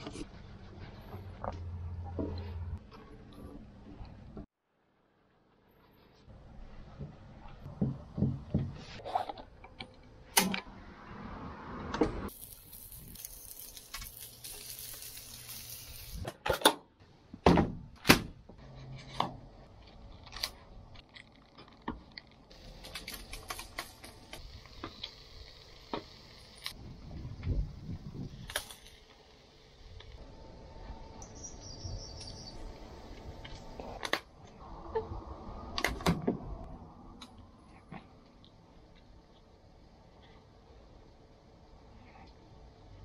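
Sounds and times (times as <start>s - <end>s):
fish sizzling on a hotplate: 12.3s - 16.3s, 22.5s - 26.8s.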